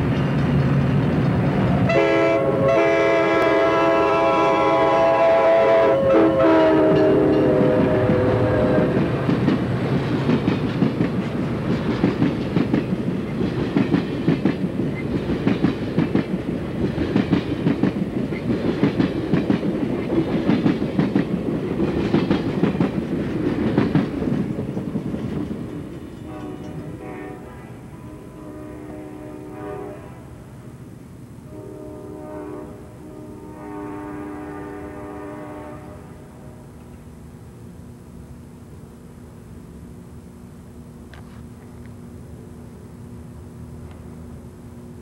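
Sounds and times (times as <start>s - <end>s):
train wheels clickety-clack: 0.0s - 2.5s, 6.6s - 27.2s
train air horn: 1.9s - 9.1s, 26.2s - 30.6s, 31.4s - 36.8s.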